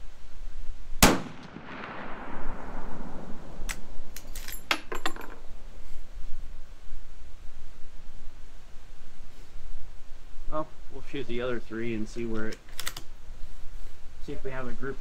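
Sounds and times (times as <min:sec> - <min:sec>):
rifle shot with echo: 0:01.0 - 0:03.9
rifle lever metallic clicks: 0:12.4 - 0:13.1.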